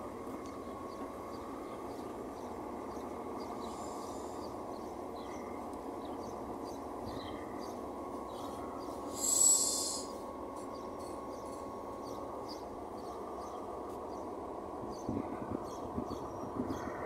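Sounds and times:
train engine idling hum: 0.0 - 17.0
compressed air hiss: 9.1 - 10.1.

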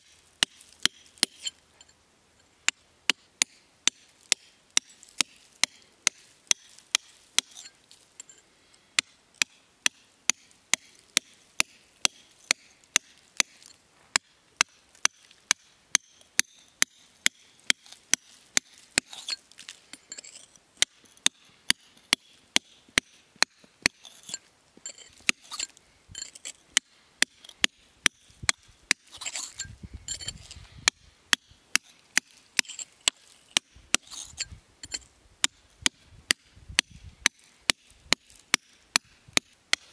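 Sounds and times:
hammer striking chisel on stone: 2.7 - 8.4, 9.0 - 13.6, 20.0 - 39.9.

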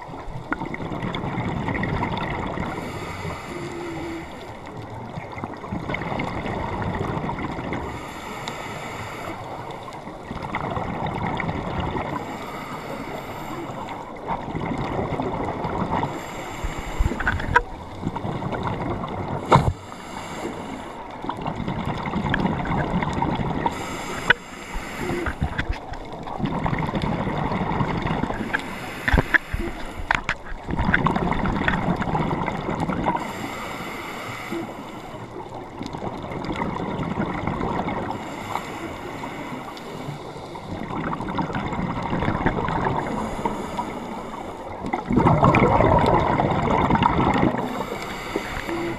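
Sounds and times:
exhaled bubbles rumbling: 0.0 - 8.1, 9.5 - 19.9, 20.6 - 33.4, 35.2 - 38.2, 39.0 - 48.9
regulator inhale hiss: 2.7 - 4.7, 7.8 - 10.0, 12.2 - 14.2, 16.0 - 17.6, 19.4 - 21.1, 23.6 - 25.8, 28.4 - 30.4, 33.2 - 35.4, 38.1 - 40.8, 43.0 - 44.9, 47.6 - 48.9.

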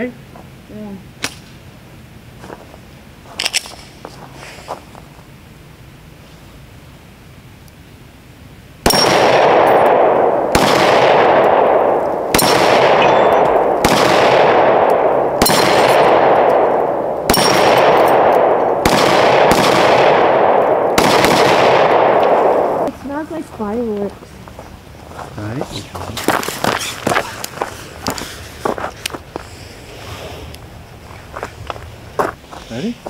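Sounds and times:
echoing gunshots: 8.8 - 23.0.

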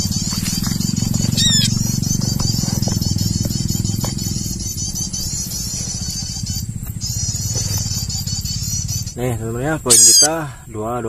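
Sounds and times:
low pulsing engine drone: 0.0 - 11.0
quick high-pitched chirps: 1.2 - 8.6, 9.9 - 10.3.

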